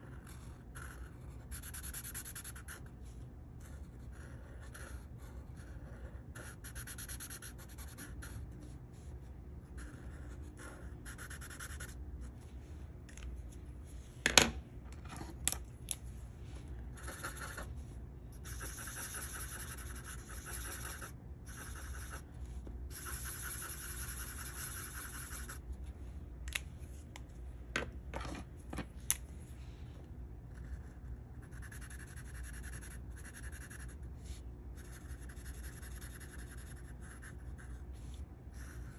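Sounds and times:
marker scratching on paper: 0.0 - 12.4, 16.9 - 25.7, 30.5 - 38.9.

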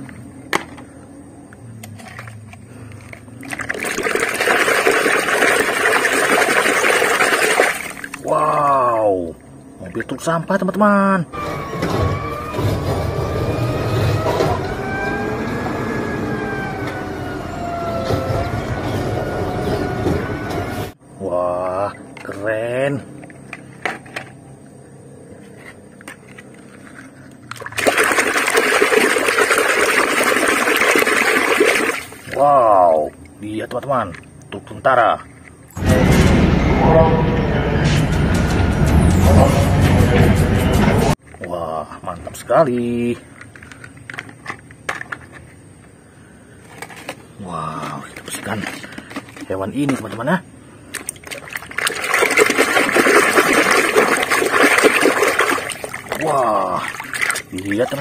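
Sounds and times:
water splashing in a basin: 3.0 - 10.3, 26.9 - 34.4, 50.9 - 58.0
sponge scrubbing: 51.9 - 56.2.

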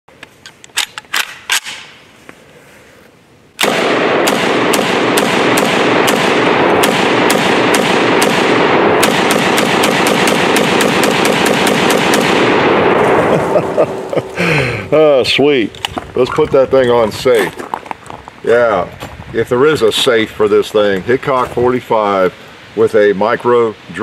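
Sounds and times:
pistol gunshots: 3.6 - 13.3.

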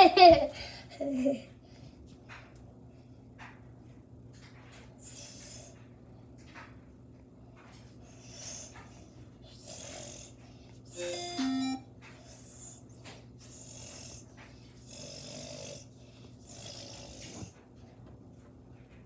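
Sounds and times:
steady low hum: 0.0 - 19.0
noisy breathing: 4.9 - 5.9, 8.0 - 17.6
electronic tone: 11.0 - 11.8.

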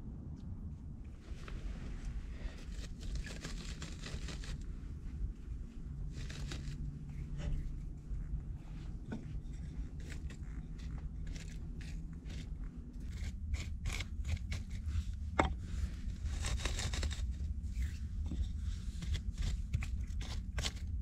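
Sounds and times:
low rumble: 0.0 - 21.0
stick scraping through embers: 2.3 - 4.6, 9.5 - 21.0
sharp clicks and crunches: 2.5 - 4.6, 6.0 - 7.0, 16.1 - 17.9.

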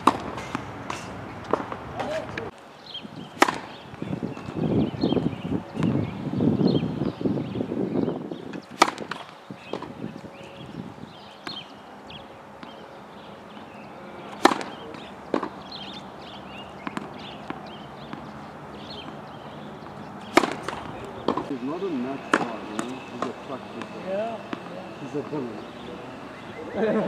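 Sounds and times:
tennis ball hit with racket: 0.0 - 2.5, 3.3 - 4.5, 8.5 - 9.9, 13.5 - 21.5, 22.3 - 25.3
ball bouncing on hard court: 16.8 - 18.3, 19.8 - 21.5.

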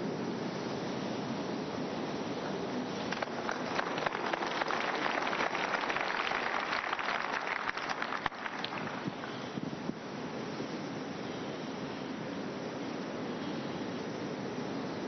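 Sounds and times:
crowd applauding: 3.1 - 9.3.

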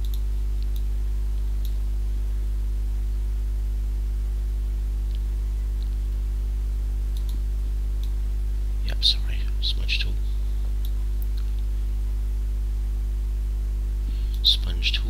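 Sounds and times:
electrical mains hum: 0.0 - 15.0
computer mouse clicks: 7.1 - 7.4.

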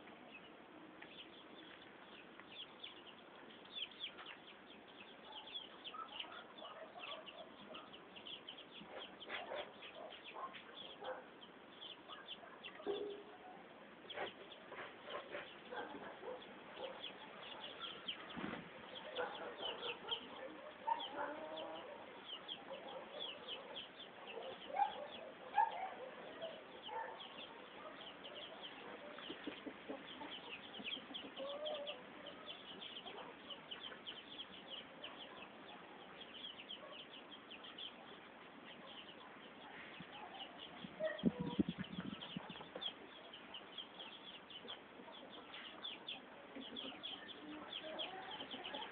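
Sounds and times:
chicks peeping: 0.0 - 48.9
rustling thump: 18.3 - 18.8.

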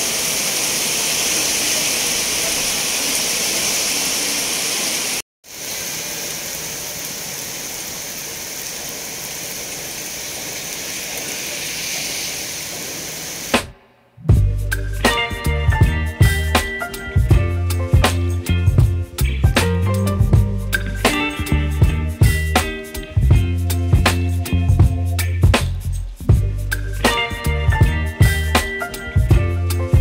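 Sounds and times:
heavy rain hissing: 0.0 - 13.8
music: 14.2 - 30.0.

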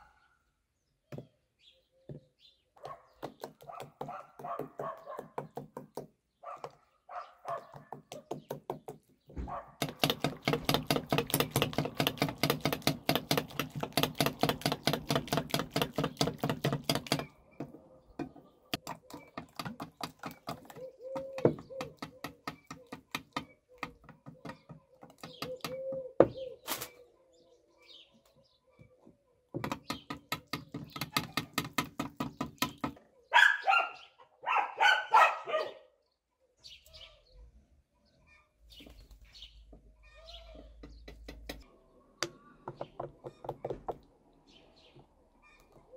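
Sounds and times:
dog barking: 2.8 - 5.4, 6.4 - 7.8, 9.4 - 9.8, 33.3 - 35.9
whisk beating batter in glass bowl: 9.8 - 17.3.

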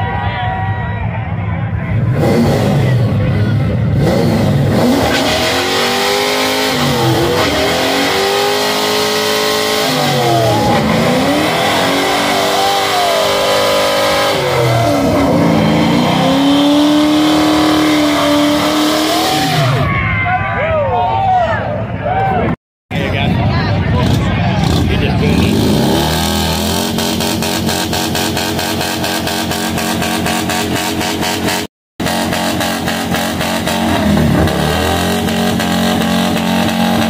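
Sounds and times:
car engine revving: 1.9 - 19.8, 23.1 - 37.0
spinning tyres rushing: 23.0 - 37.0.

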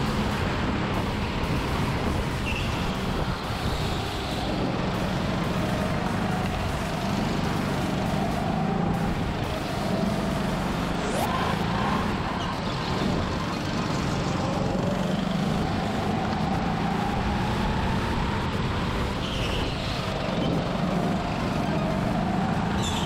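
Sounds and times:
tyre and air noise: 0.0 - 14.8
go-kart motor whine: 0.0 - 23.0.

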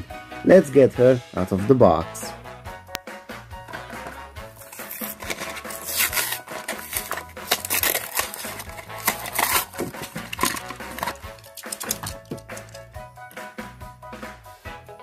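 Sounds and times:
background music: 0.0 - 15.0
plastic packaging crinkling and tearing: 4.6 - 12.8.

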